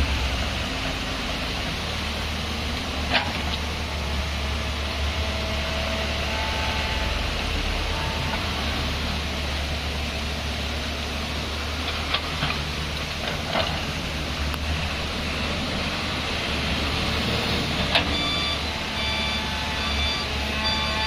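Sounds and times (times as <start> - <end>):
heavy diesel machinery rumbling: 0.0 - 21.0
reversing alarm beeping: 18.0 - 21.0.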